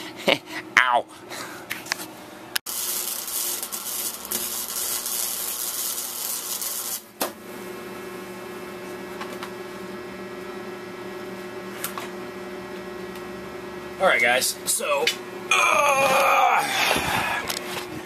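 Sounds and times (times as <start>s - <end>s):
steady hum: 0.0s - 18.0s
welding arc crackling hiss: 2.7s - 7.2s.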